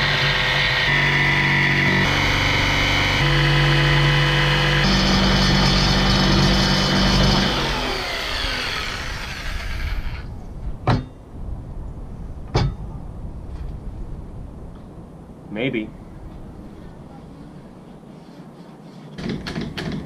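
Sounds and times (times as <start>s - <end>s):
jigsaw cutting wood: 0.0s - 10.3s
sharp knocks: 10.8s - 11.2s.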